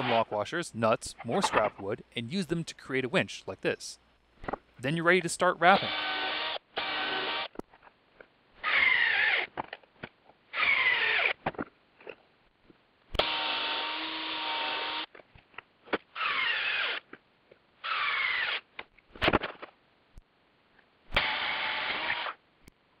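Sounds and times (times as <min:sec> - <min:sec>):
drill motor whine: 0:05.8 - 0:07.6, 0:08.6 - 0:09.5, 0:10.6 - 0:11.4, 0:13.2 - 0:15.1, 0:16.2 - 0:17.0, 0:17.8 - 0:18.6, 0:21.2 - 0:22.4.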